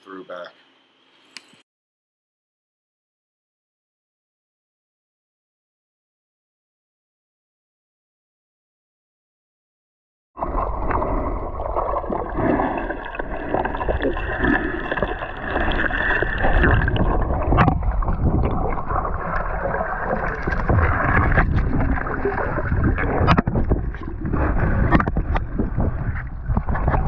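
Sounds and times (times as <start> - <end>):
water rushing and bubbling underwater: 10.4 - 27.0.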